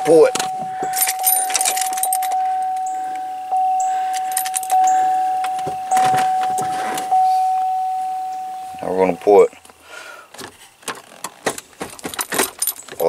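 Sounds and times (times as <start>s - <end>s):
metallic jangling clicks: 0.0s - 7.2s, 11.2s - 13.0s
dashboard warning chime dinging: 0.0s - 9.6s.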